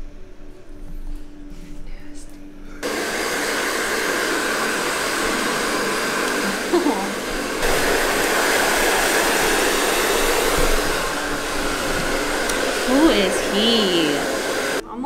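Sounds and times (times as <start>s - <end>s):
hair dryer blowing: 2.8s - 14.8s.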